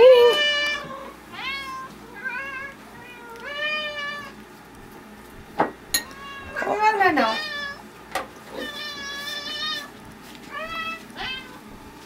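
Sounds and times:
cat meowing: 6.1 - 6.7, 8.5 - 9.9, 10.5 - 11.6.

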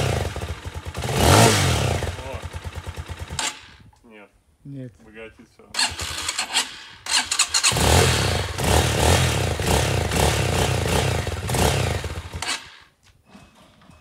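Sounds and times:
motorcycle engine pulsing: 0.0 - 3.9, 5.8 - 12.8.

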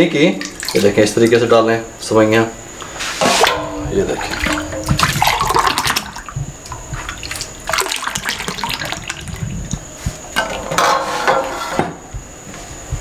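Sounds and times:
milk splashing from a ladle: 0.4 - 1.4, 3.2 - 9.4.

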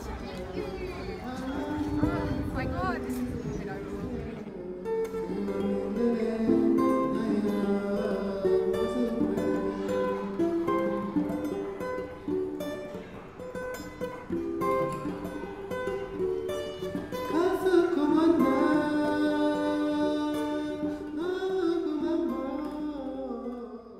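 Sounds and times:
person singing: 0.0 - 12.1, 16.6 - 23.9
plucked-string tune: 4.7 - 22.8.

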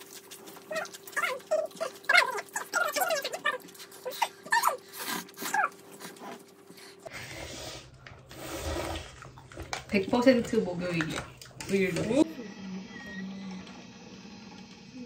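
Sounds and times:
dog whining: 0.5 - 6.5.

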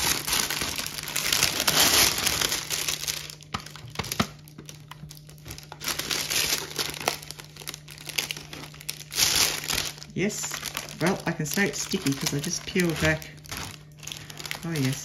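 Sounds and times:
plastic film crinkling: 0.0 - 15.0.

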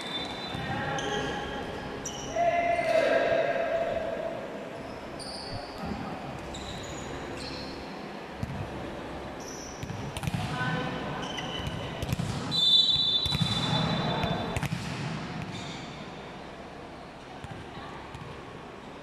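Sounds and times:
volleyball hits and bounces: 9.8 - 10.6, 11.6 - 15.8
referee's whistle blowing: 12.5 - 14.5.

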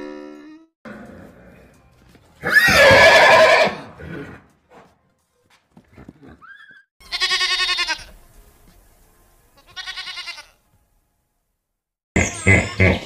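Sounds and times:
horse whinnying: 2.4 - 4.4, 6.0 - 6.9.

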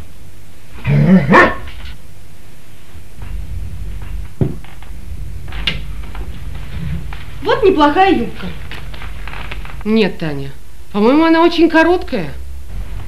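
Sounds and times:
steady low hum: 0.0 - 13.0
dog barking: 1.0 - 1.8.

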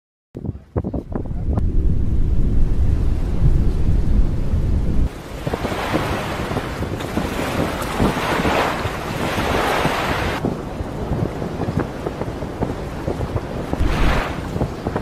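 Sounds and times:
muffled underwater rumble: 0.4 - 6.0
wind hiss on microphone: 5.0 - 15.0
seawater splashing: 5.1 - 10.4, 13.6 - 15.0.

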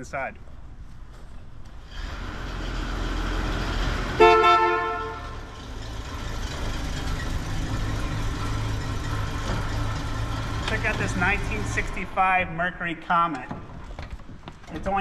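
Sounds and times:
car horn: 4.1 - 5.6
steady low hum: 4.2 - 14.4.

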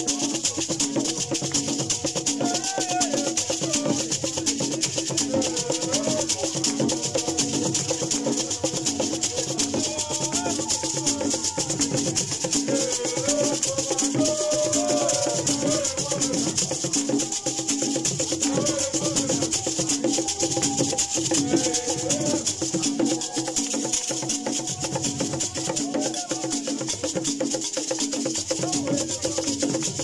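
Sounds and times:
gourd rattles shaken: 0.0 - 30.0
group singing: 0.0 - 30.0
stick-played drums: 0.0 - 30.0.

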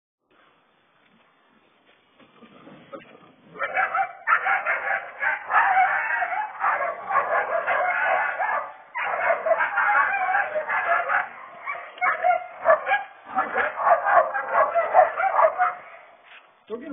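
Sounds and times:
loud animal cries: 3.6 - 16.1.

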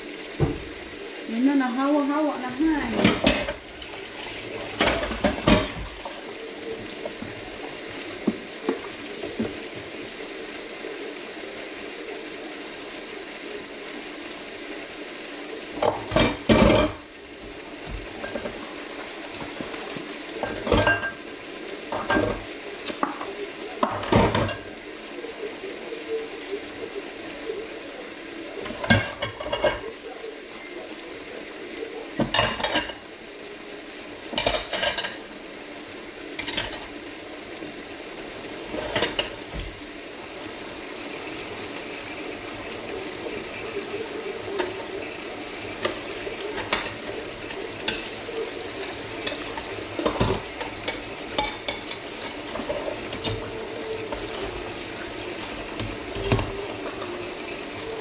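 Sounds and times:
steady hiss: 0.0 - 58.0
dishes and cutlery clattering: 2.9 - 3.6, 4.7 - 5.8, 15.8 - 17.0, 18.2 - 18.6, 20.4 - 21.2, 28.7 - 29.9, 32.2 - 33.0, 34.4 - 35.2, 36.4 - 36.9, 38.8 - 39.4, 49.2 - 53.5.

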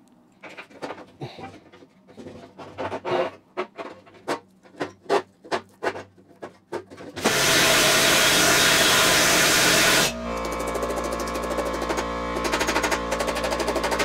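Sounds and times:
pneumatic planishing hammer: 7.2 - 14.0.

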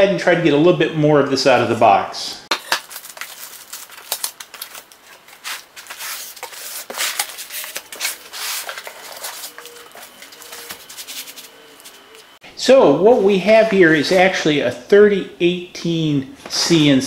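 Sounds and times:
paper and cardboard rustling: 2.5 - 12.4.

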